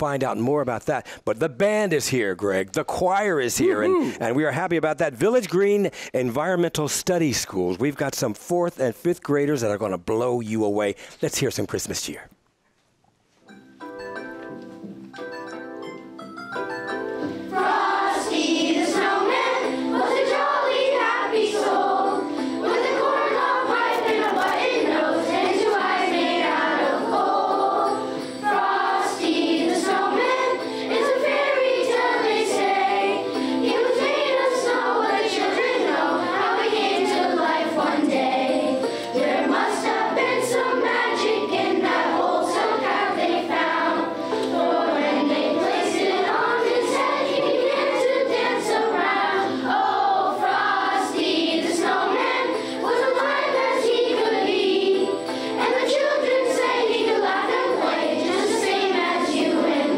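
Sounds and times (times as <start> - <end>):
musical accompaniment: 13.3 - 59.9
children's choir singing: 17.4 - 59.9.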